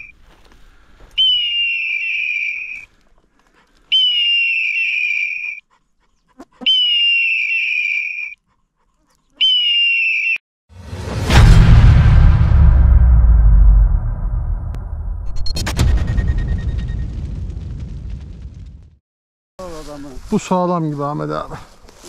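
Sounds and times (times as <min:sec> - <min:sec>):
loud boom with low rumble: 0:10.8 - 0:19.0.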